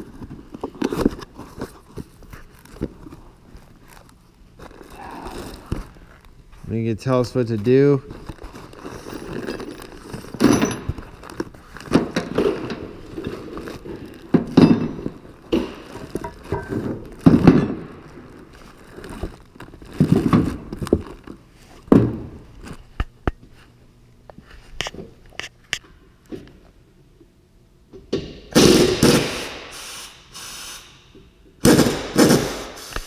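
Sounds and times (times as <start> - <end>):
cardboard and plastic bags rustling: 0.0 - 6.6, 7.4 - 21.9.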